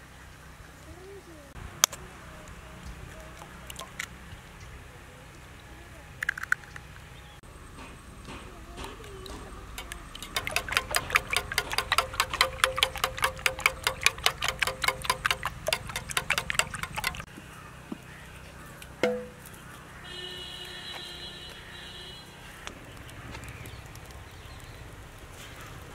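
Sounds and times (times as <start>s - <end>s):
whisk clicking in steel bowl: 9.3s - 17.3s
sharp knock: 19.0s - 19.4s.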